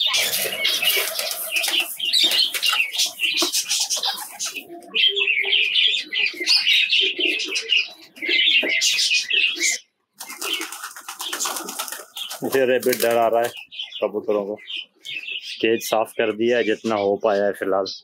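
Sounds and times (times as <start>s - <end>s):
birds chirping: 0.0s - 18.0s
pigeons cooing: 0.0s - 18.0s.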